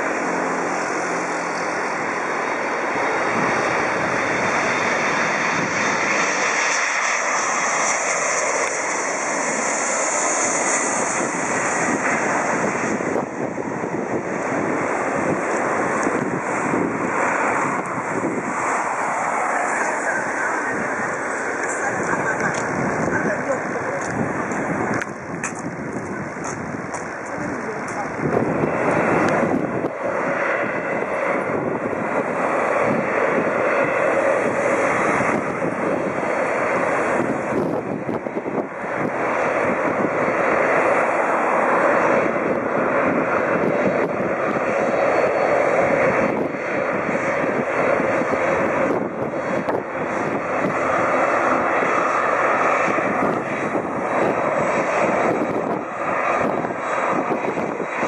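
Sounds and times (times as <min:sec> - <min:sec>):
jet engines roaring: 0:00.0 - 0:58.0.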